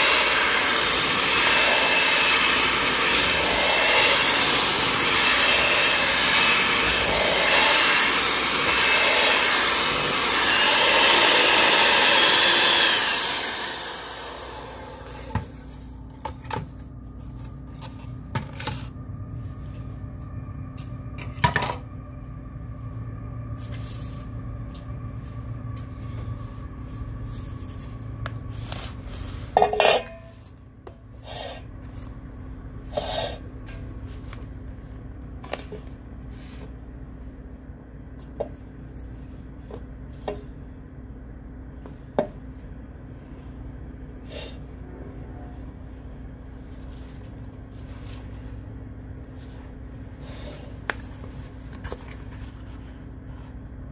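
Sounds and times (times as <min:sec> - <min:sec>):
electric mixer running: 0:00.0 - 0:15.6
low hum: 0:13.0 - 0:53.9.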